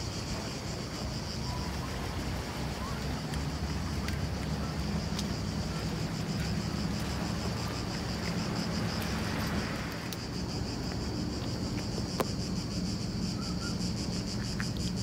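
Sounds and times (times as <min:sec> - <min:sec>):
cicadas buzzing: 0:00.0 - 0:15.0.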